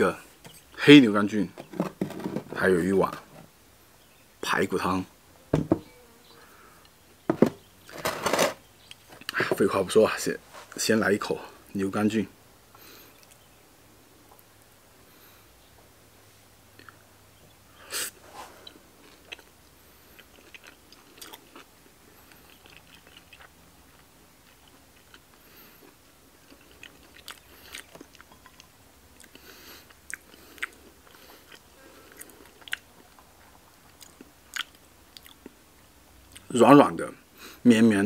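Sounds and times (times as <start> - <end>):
wet chewing and lip smacks: 18.6 - 35.6.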